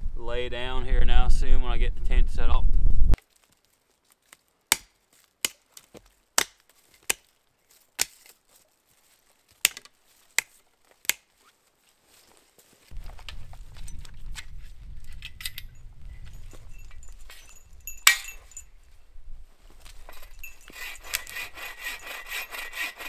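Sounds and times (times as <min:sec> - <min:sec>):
hatchet chopping branch: 0:04.3 - 0:07.3, 0:08.0 - 0:08.4, 0:09.6 - 0:11.4, 0:18.0 - 0:18.4, 0:20.1 - 0:23.0.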